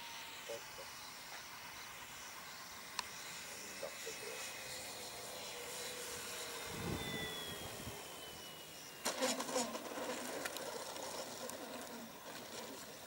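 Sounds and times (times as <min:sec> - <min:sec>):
model plane electric motor whining: 0:00.0 - 0:13.0.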